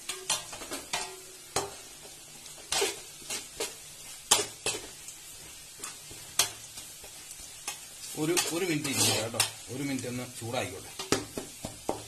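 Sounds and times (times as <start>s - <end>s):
faint sizzling in oil: 0.0s - 12.0s
ladle scraping metal pot: 8.4s - 9.6s.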